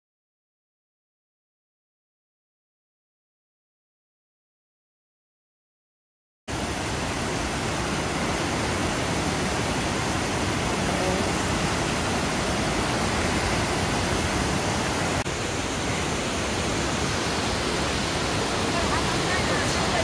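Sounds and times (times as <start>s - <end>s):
waterfall rushing: 6.5s - 20.0s.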